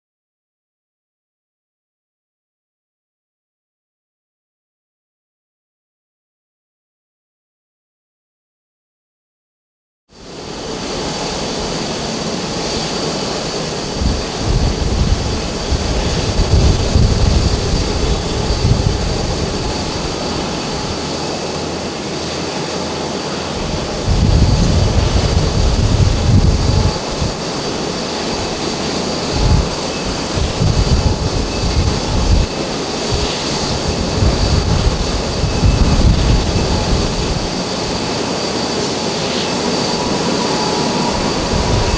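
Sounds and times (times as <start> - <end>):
jet engines running: 10.1 - 41.9.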